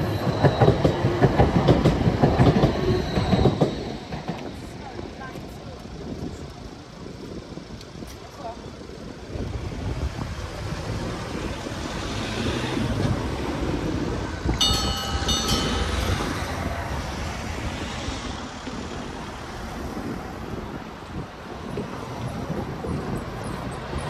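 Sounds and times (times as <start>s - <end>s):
crossing bell ringing: 14.6s - 17.4s.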